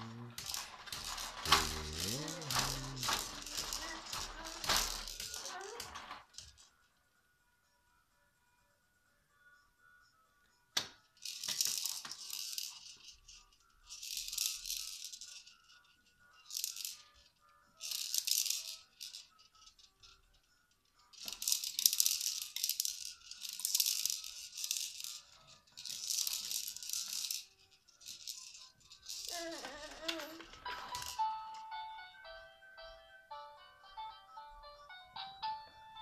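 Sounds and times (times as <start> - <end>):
plastic beads rattling in spinning toy: 0.0 - 6.8, 10.8 - 31.6.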